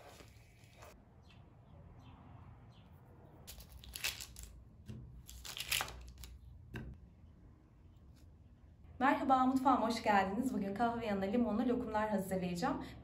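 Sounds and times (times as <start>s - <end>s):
sugar rustling: 3.5s - 4.6s, 5.2s - 6.5s
paper crinkling: 5.2s - 6.4s.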